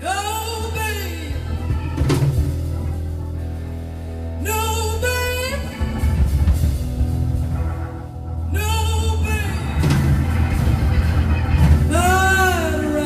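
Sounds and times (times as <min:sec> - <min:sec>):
woman singing: 0:00.0 - 0:02.3, 0:04.4 - 0:06.4, 0:08.5 - 0:10.0, 0:11.1 - 0:13.0
bass: 0:00.0 - 0:13.0
organ chords: 0:00.0 - 0:13.0
drums with cymbal crash: 0:01.3 - 0:03.6, 0:05.4 - 0:13.0.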